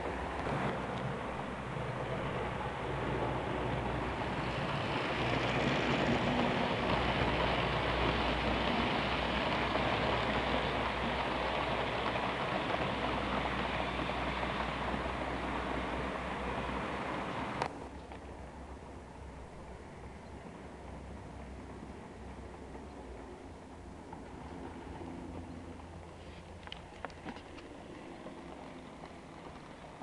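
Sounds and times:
model train wheels rattling on rails: 0.0s - 17.7s.

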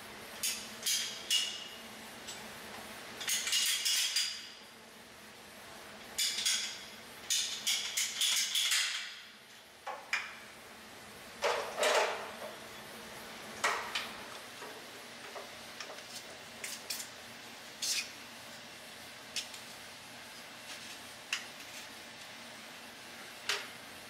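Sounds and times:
tools clicking and clattering: 3.2s - 4.4s, 6.2s - 9.2s.

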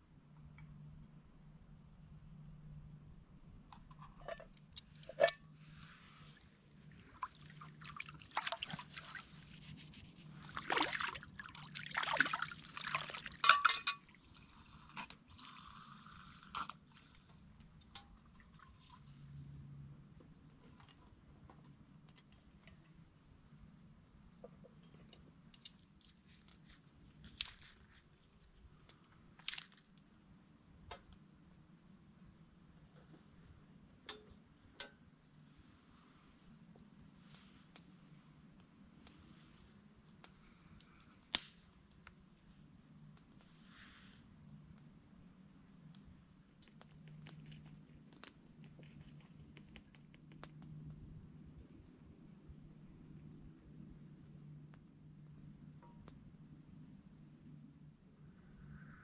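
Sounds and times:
water pouring and dripping: 7.0s - 19.2s.

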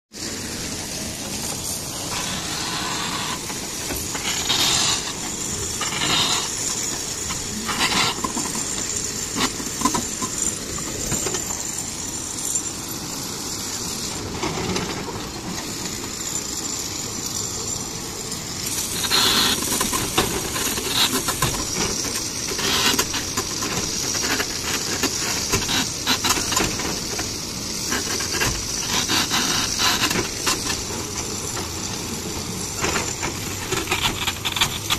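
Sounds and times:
quarry machinery hissing: 0.2s - 34.9s.

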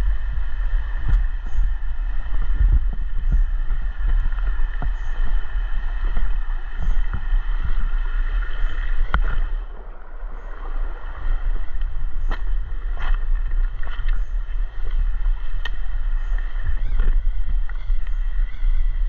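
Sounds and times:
microphone handling noise: 0.0s - 9.8s, 10.4s - 19.0s
rocky creek running: 0.0s - 19.0s
wind rumble: 0.0s - 19.0s.

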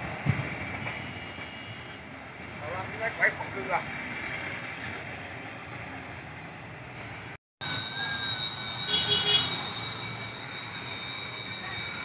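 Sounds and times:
freight train rumble: 0.0s - 12.0s
high-pitched whistling tones: 7.6s - 12.0s
ringing cluster of high tones: 7.6s - 12.0s.

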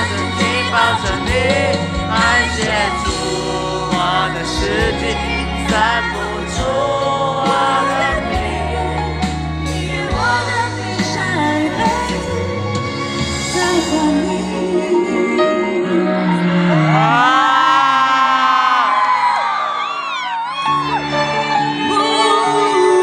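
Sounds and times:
sustained bass notes: 0.0s - 17.4s
live pop ballad with singing: 0.0s - 23.0s.

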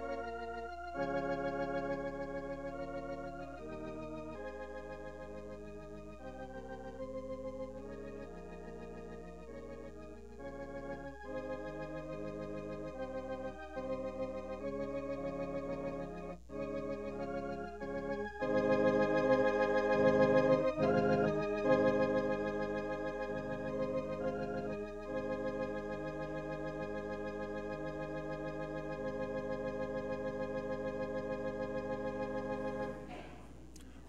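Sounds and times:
organ playing sustained chords: 0.0s - 33.1s.

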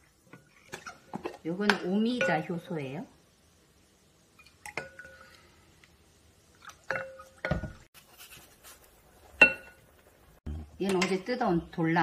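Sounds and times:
wooden spoon clinking glass bowl: 6.9s - 7.8s.

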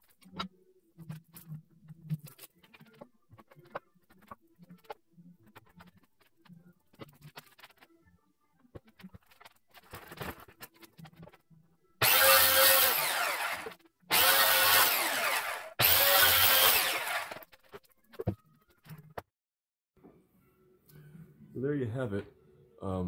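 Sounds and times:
circular saw cutting wood: 12.0s - 17.5s.

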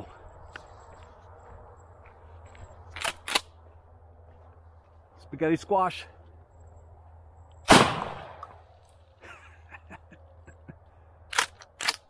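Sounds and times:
shotgun blast: 7.7s - 8.6s.

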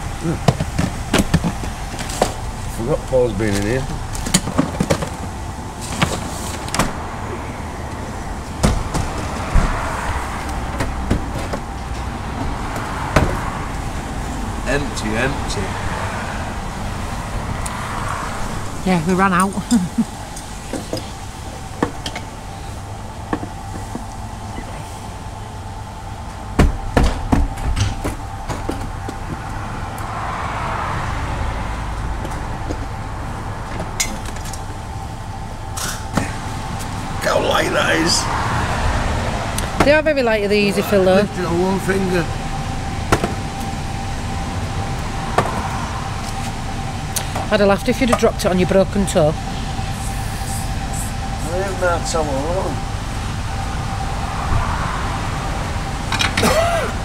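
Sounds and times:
low rumble of vehicles: 0.0s - 57.0s
low rumble: 44.2s - 56.2s.

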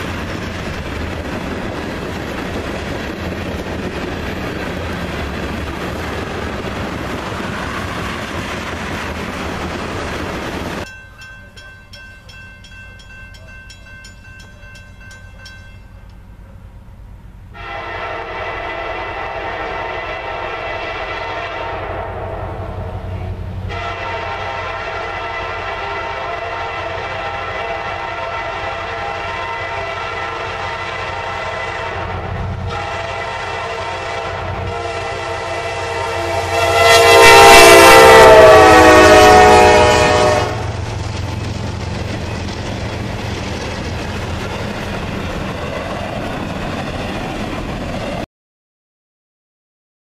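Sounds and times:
train cars rumbling and clattering: 0.0s - 17.7s, 18.3s - 48.2s
locomotive air horn: 17.5s - 40.7s.

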